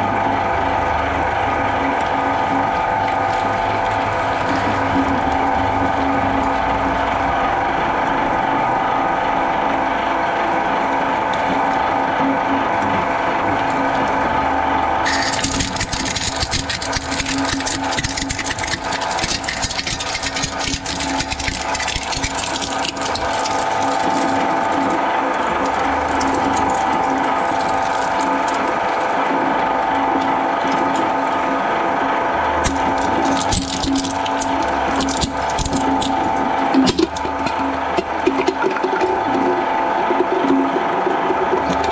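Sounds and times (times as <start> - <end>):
shredder motor hum and whine: 0.0 - 41.9
shredder crunching plastic: 15.0 - 31.6, 32.5 - 41.9.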